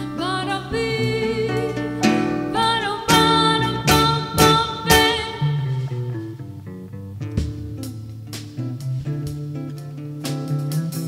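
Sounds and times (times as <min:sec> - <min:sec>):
woman singing with vibrato: 0:00.0 - 0:06.3
acoustic guitar: 0:00.0 - 0:11.0
bass: 0:00.0 - 0:11.0.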